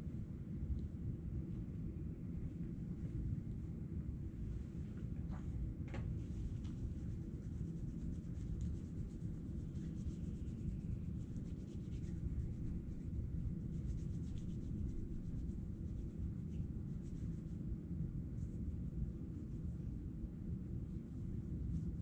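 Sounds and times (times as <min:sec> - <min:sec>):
low background rumble: 0:00.0 - 0:22.0
hands rubbing together: 0:06.2 - 0:17.6.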